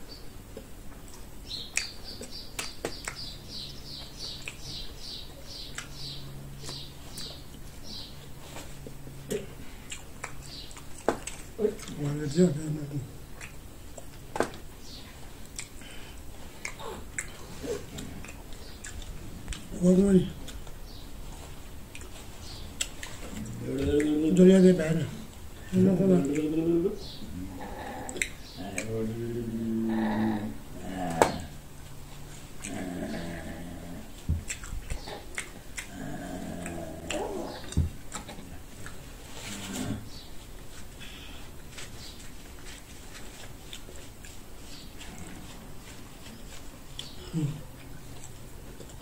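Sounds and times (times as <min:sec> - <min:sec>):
wet chewing and mouth smacks: 0:00.5 - 0:07.8, 0:08.8 - 0:12.0, 0:13.3 - 0:14.6, 0:15.4 - 0:19.7, 0:20.4 - 0:24.2, 0:28.1 - 0:28.9, 0:34.1 - 0:39.1, 0:46.0 - 0:49.0.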